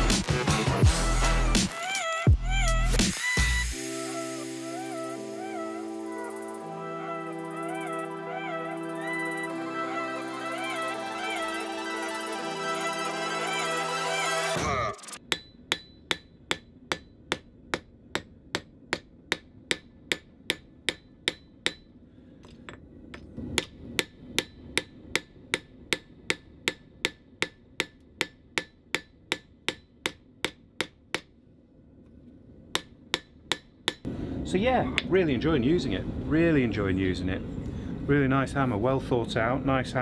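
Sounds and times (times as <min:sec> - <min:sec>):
hammer striking hot steel on anvil: 0:15.2 - 0:21.9, 0:22.6 - 0:31.3, 0:32.7 - 0:34.1.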